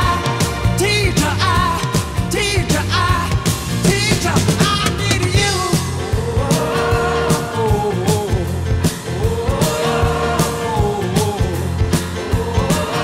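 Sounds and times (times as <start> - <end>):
rock music: 0.0 - 13.0.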